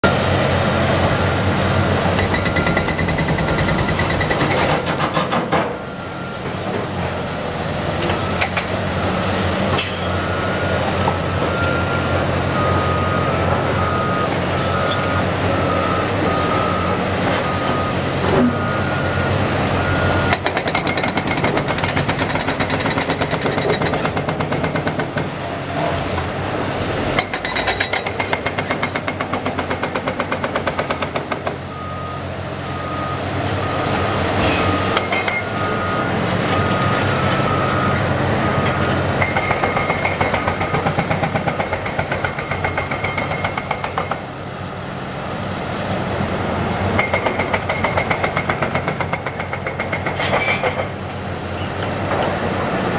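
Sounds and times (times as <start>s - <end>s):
hydraulic breakers pounding concrete: 0.0s - 31.9s, 33.4s - 44.6s, 46.6s - 52.9s
diesel excavators running: 0.0s - 52.9s
backup alarms beeping: 2.2s - 4.4s, 10.1s - 21.8s, 30.8s - 41.8s.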